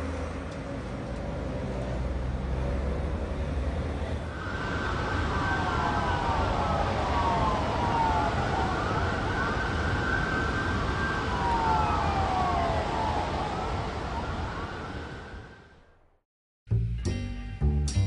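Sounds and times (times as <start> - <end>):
low traffic rumble: 0.0 - 16.2
sirens wailing: 4.2 - 16.1.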